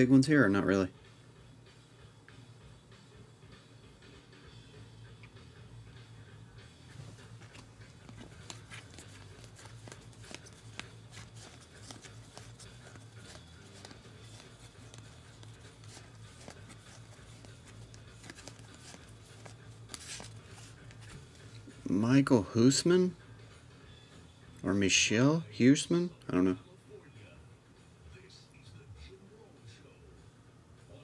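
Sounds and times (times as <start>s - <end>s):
low steady hum: 0.0s - 31.0s
trading cards shuffled by hand: 7.0s - 21.9s.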